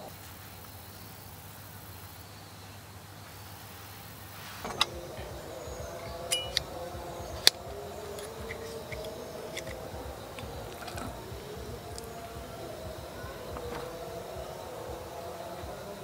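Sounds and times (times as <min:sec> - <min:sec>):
steady wavering ringing tone: 0:04.9 - 0:16.0
knife clinking on plate: 0:06.3 - 0:06.6.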